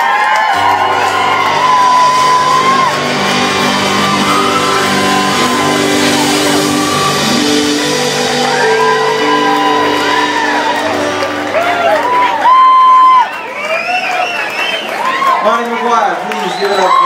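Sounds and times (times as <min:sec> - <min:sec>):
audience whooping and shouting: 0:00.0 - 0:17.0
acoustic guitar: 0:00.5 - 0:13.0
fiddle melody: 0:00.6 - 0:13.3
held bass notes: 0:00.6 - 0:13.4.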